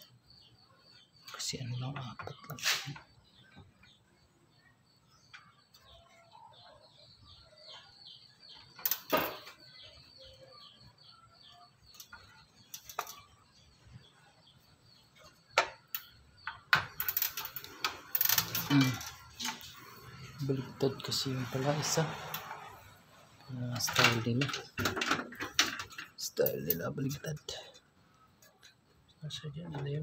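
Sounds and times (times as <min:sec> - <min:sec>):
rattling and rustling: 0:21.5 - 0:27.2.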